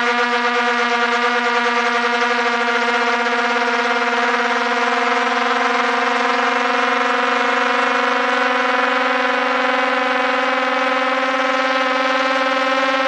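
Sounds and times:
drone propellers whining: 0.0 - 13.0.

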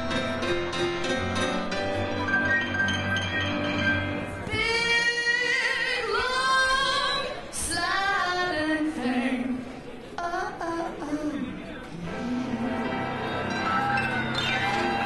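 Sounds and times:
grand piano: 0.0 - 5.6, 12.0 - 15.0
woman singing with vibrato: 4.4 - 13.2.

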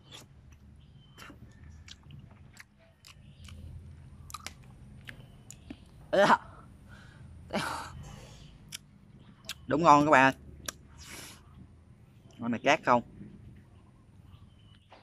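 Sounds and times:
person chewing wetly: 0.0 - 5.9.

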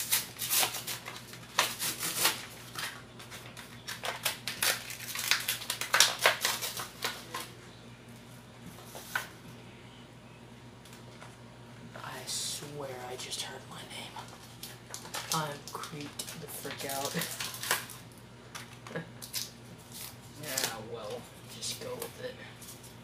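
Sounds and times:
foil pack crinkling and tearing: 0.0 - 7.6, 14.2 - 23.0.

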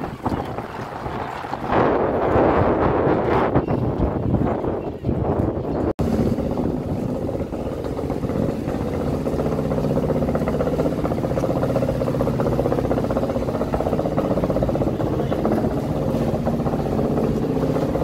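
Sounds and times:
diesel engine idling: 6.0 - 18.0.

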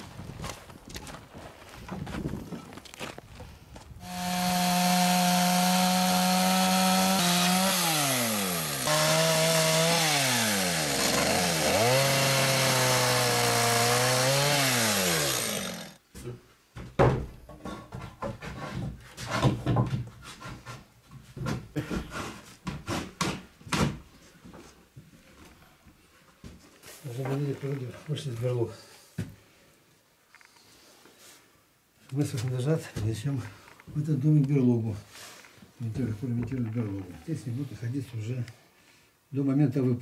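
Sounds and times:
chainsaw cutting wood: 4.0 - 16.0
wooden knocks and clatters: 16.8 - 24.0.

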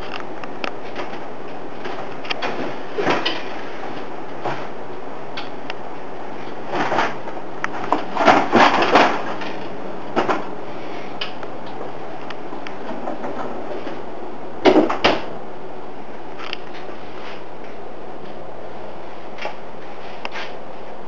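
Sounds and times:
freezer basket rattling: 6.6 - 10.5.

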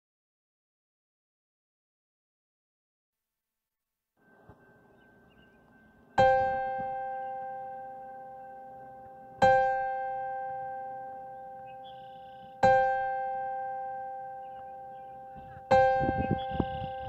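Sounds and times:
piano notes ringing: 4.2 - 17.0.

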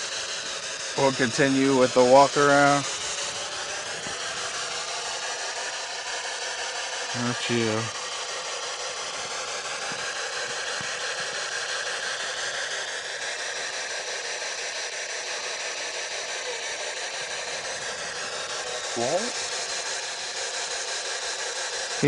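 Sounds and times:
radio static hiss: 0.9 - 5.9, 7.0 - 8.3.

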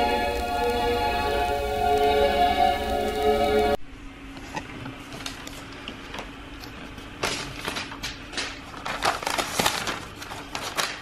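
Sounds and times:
background music: 0.0 - 3.8.

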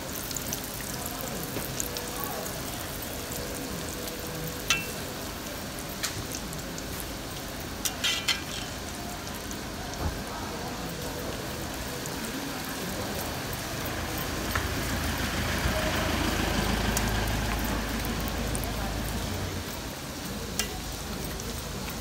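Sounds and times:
food deep-frying in sizzling oil: 0.0 - 22.0
metal spatula clicking against wok: 20.5 - 20.8.

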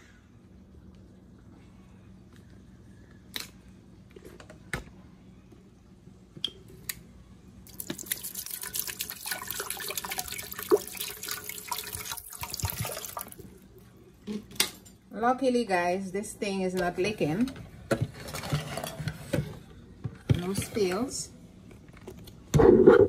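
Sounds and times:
water pouring into pitcher: 7.7 - 13.6.

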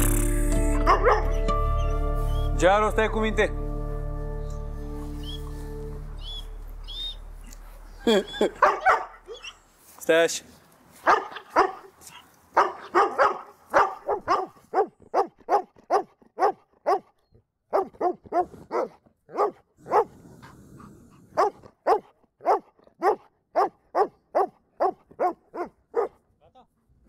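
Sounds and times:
dog barking: 0.8 - 1.4, 8.5 - 9.6, 11.0 - 20.2, 21.3 - 26.2.

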